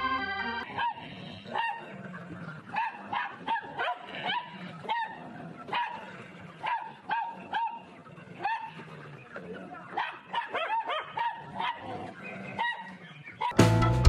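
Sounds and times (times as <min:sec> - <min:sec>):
small dogs barking: 0:00.6 - 0:13.6.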